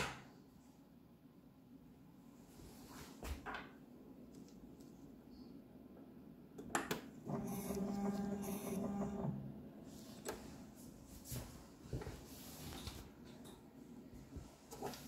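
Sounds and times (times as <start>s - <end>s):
pump humming: 7.2s - 9.5s.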